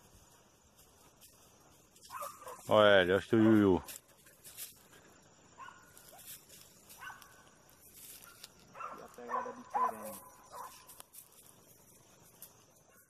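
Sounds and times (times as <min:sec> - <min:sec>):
brush crackling: 0:00.0 - 0:13.0
dog yelping barks: 0:02.0 - 0:02.6, 0:05.6 - 0:06.3, 0:07.0 - 0:07.4, 0:08.3 - 0:10.8.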